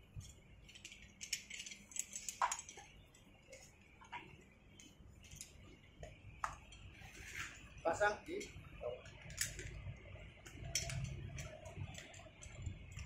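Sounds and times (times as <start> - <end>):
metal carabiners clinking: 0.1 - 3.8, 4.8 - 5.7, 7.9 - 13.0.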